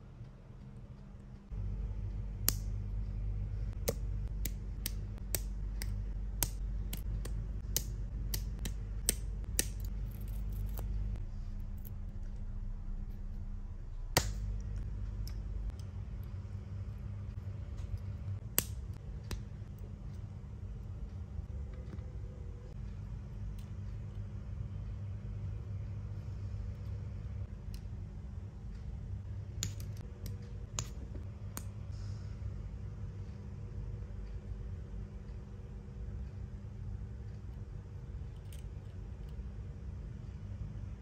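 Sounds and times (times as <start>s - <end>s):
steady low hum: 0.0s - 41.0s
tweezers clicking on plastic parts: 3.8s - 10.9s.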